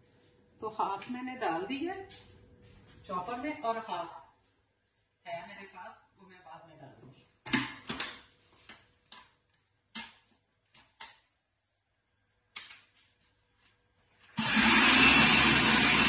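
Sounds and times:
food chopper motor whirring: 14.3s - 16.0s.

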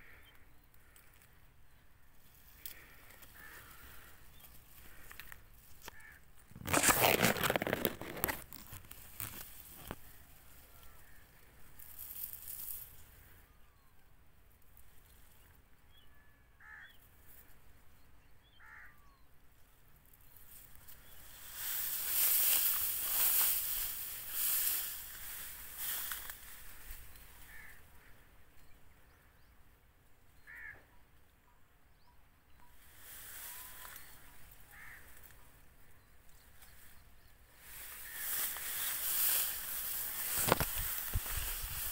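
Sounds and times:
faint short bird calls: 0.0s - 8.4s, 15.9s - 17.5s, 18.4s - 19.4s, 20.7s - 29.6s, 30.3s - 41.9s
loud rustling noise: 6.5s - 10.2s, 21.2s - 27.1s, 37.6s - 41.9s.

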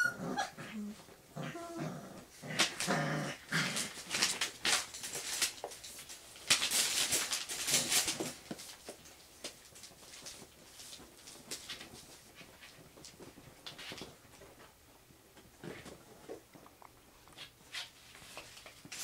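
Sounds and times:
puppy growls: 0.0s - 4.3s
puppies scuffling on bedding: 2.2s - 19.0s.

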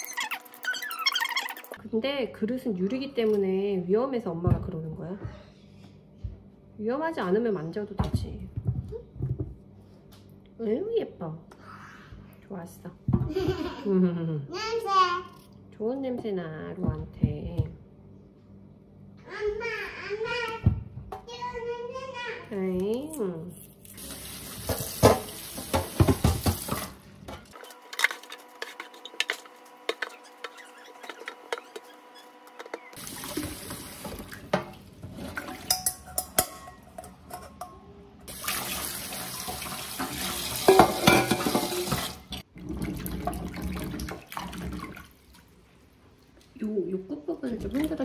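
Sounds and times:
tap water running into sink: 24.0s - 27.0s, 33.0s - 35.7s, 38.3s - 45.1s
metal strainers clinking on sink: 35.4s - 37.8s, 39.5s - 41.9s.

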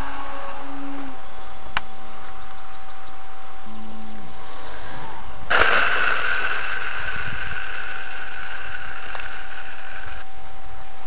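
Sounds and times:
electric motor high whine: 3.3s - 10.4s.

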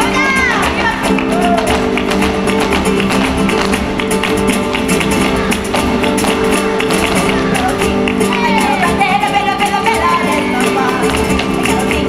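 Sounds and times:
acoustic guitars strumming: 0.0s - 12.0s
sharp percussive strikes: 0.6s - 8.8s.

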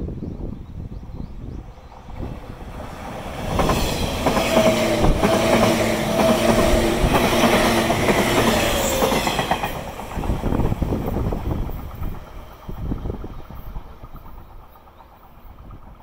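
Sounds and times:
train wheels clattering on rails: 2.2s - 16.0s.

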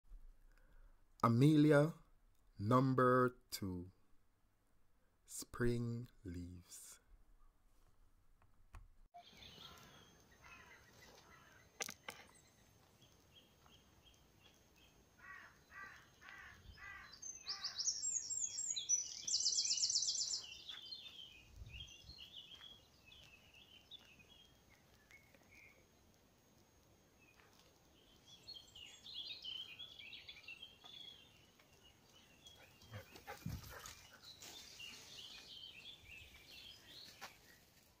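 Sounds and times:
songbirds singing and calling: 9.2s - 26.2s, 27.2s - 37.8s.

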